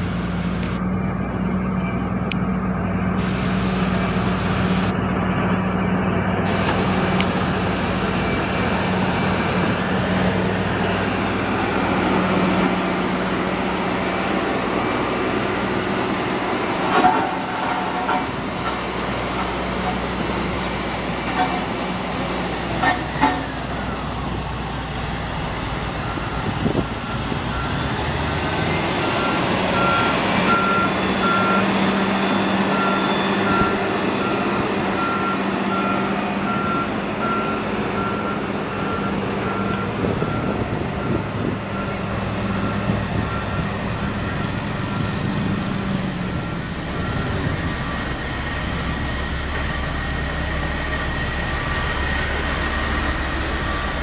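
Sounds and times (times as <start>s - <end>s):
diesel engines running: 0.0s - 54.0s
reversing alarm beeping: 25.8s - 54.0s.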